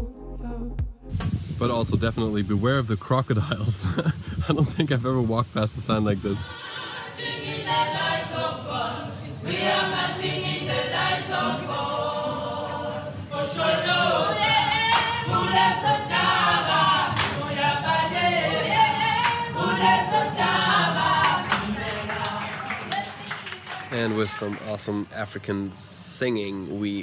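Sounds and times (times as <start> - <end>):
group singing in harmony: 6.4 - 23.5
sharp hand claps: 14.9 - 15.2, 17.1 - 17.4, 19.2 - 19.4, 21.2 - 24.7.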